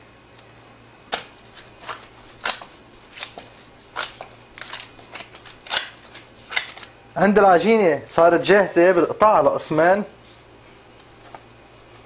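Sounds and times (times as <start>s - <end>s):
squishy dough kneading: 1.0s - 7.6s.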